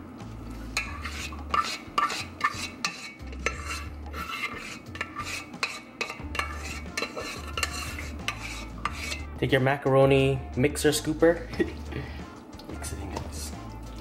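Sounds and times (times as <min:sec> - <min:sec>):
spatula scraping metal saucepan: 0:00.6 - 0:09.4.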